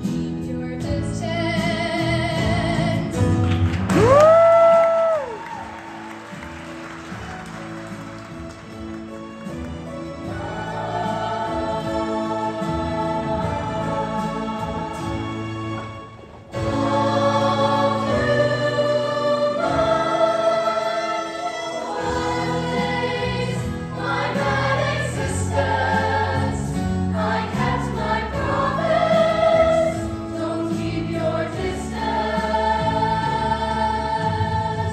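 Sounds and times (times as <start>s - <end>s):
instrumental accompaniment with bass: 0.0s - 34.9s
choir singing: 10.2s - 34.9s.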